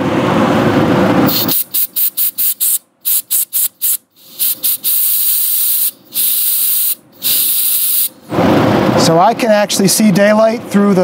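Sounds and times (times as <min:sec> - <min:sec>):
compressed air blow gun hissing: 0:01.3 - 0:08.2.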